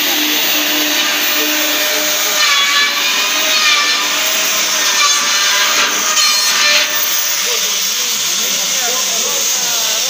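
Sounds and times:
high whine: 0.0 - 8.9
milling machine cutting metal: 0.0 - 10.0.

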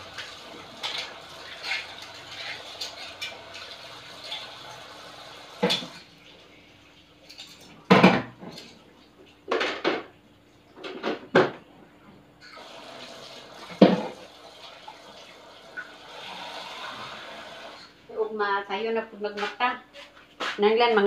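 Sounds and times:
water splashing at a sink: 0.0 - 6.5, 12.5 - 17.9
running water stream: 0.0 - 7.4.

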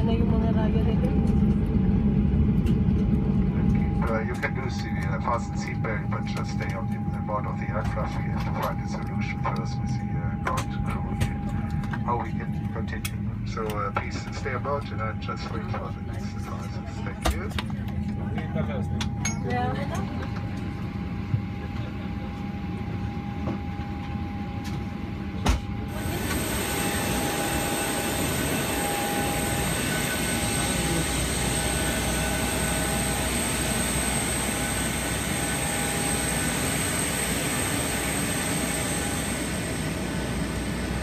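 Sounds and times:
aircraft cabin hum: 0.0 - 41.0
jet engine rushing with high whine: 0.0 - 41.0.

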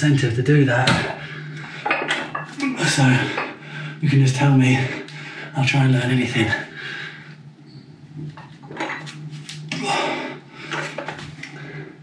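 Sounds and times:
person breathing hard: 3.2 - 4.0, 6.7 - 7.4.

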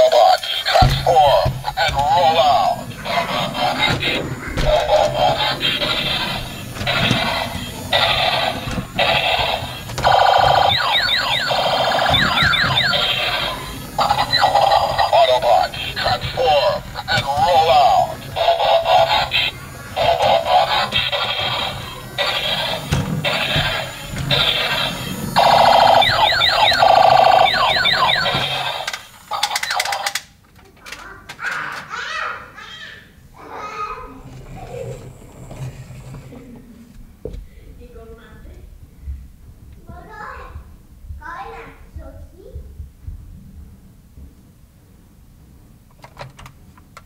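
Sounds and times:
toy electronic sound effects: 0.0 - 30.2
falling siren-like sweeps: 0.8 - 28.9.

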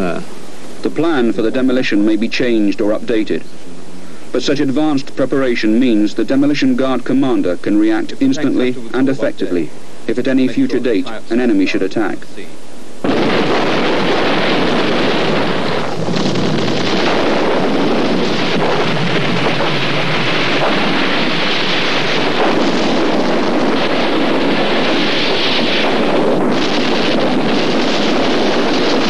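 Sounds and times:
rushing roar of debris cloud: 13.0 - 29.0.

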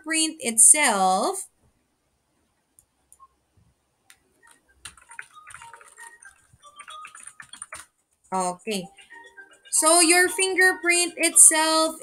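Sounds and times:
faint pitched background sound: 0.0 - 12.0
keyboard keys clicking: 4.1 - 7.9.

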